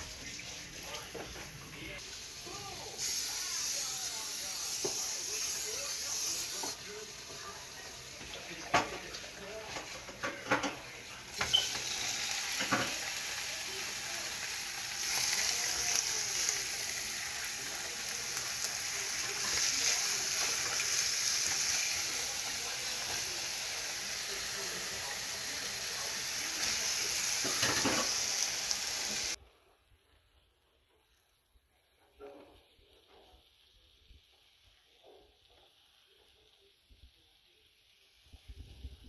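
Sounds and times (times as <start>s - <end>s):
chicken sizzling in oil: 0.0s - 29.4s.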